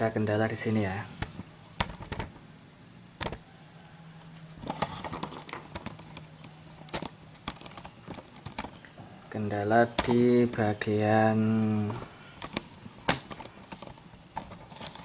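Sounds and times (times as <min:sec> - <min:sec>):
faint high-pitched whine: 0:00.0 - 0:15.0
clicks and knocks of handling: 0:03.2 - 0:03.4, 0:04.6 - 0:09.1, 0:09.8 - 0:10.9, 0:11.8 - 0:15.0.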